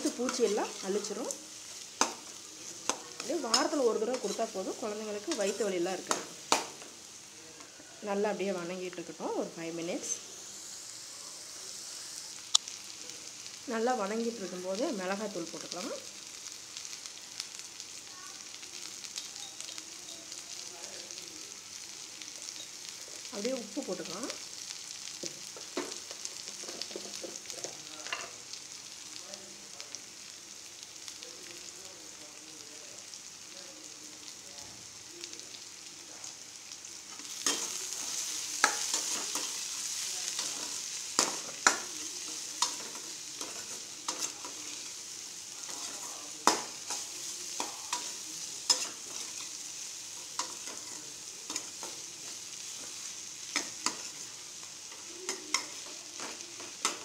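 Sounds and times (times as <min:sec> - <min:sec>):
vegetables sizzling in oil: 0:00.0 - 0:57.0.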